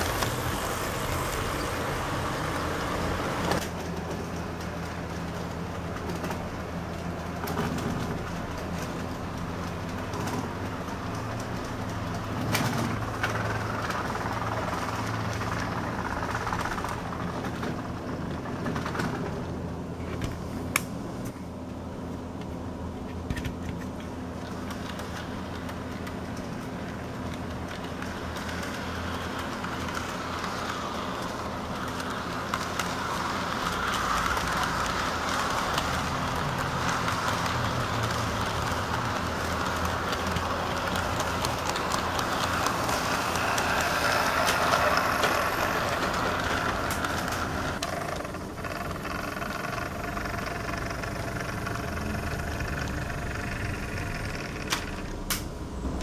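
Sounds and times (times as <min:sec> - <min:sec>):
model train motor hum: 0:00.0 - 0:03.6, 0:27.7 - 0:55.4
wheels rolling on rails: 0:00.0 - 0:56.0.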